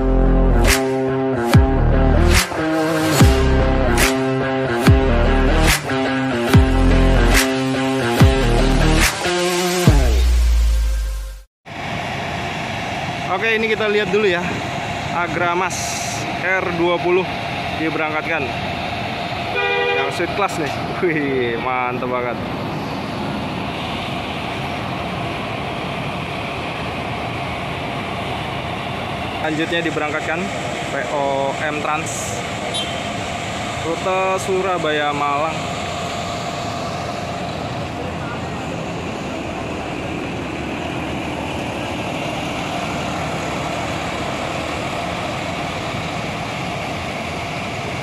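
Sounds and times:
bus engine droning: 0:00.0 - 0:48.0.

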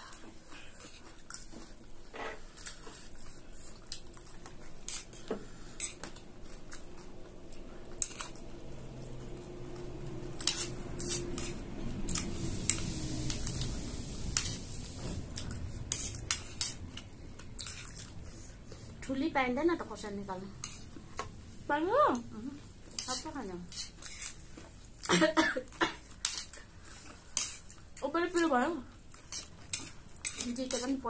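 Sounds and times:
low rumble: 0:07.5 - 0:17.5
spoons scraping ceramic plates: 0:23.0 - 0:24.4.

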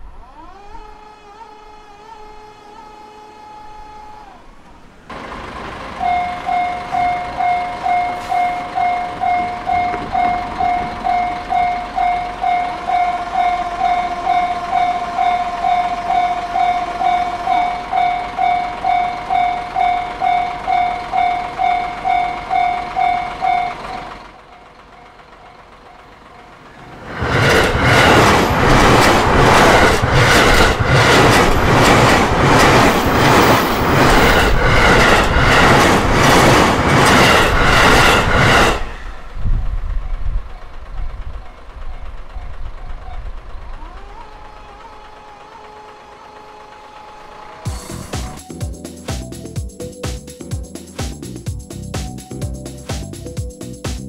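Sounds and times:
train wheels clattering: 0:05.1 - 0:48.5
level crossing warning bell: 0:05.2 - 0:26.7.

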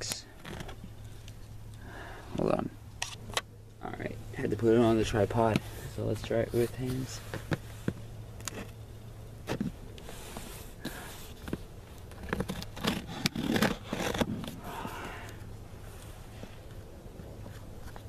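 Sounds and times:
cardboard crackling: 0:10.4 - 0:14.8.

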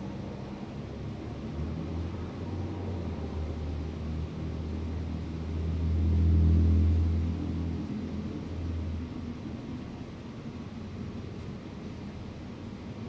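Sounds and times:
vehicle engine passing: 0:00.0 - 0:09.1.

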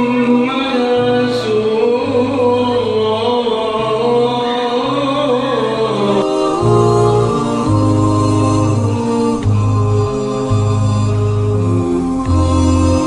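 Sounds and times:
person singing chant-like melody: 0:00.0 - 0:13.0
low sustained notes: 0:05.7 - 0:13.0.

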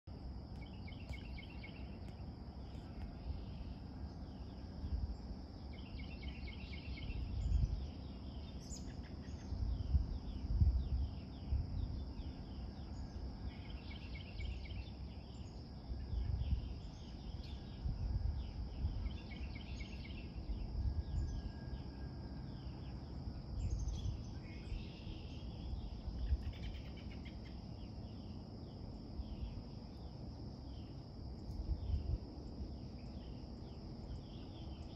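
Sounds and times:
high insect drone: 0:00.1 - 0:34.9
birds chirping: 0:00.5 - 0:17.8.

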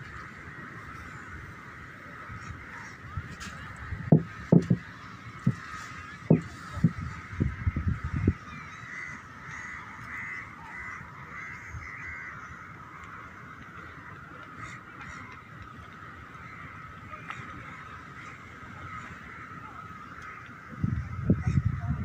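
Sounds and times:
low thumps: 0:04.0 - 0:04.8.

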